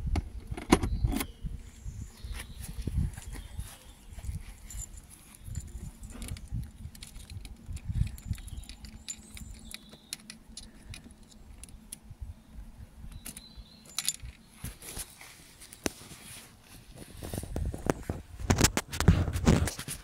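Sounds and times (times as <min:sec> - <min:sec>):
wind rumble on microphone: 0:00.0 - 0:09.8, 0:10.6 - 0:15.0, 0:16.8 - 0:20.0
small metallic jingles: 0:02.9 - 0:11.8, 0:13.1 - 0:15.9
handling clicks: 0:04.7 - 0:12.0.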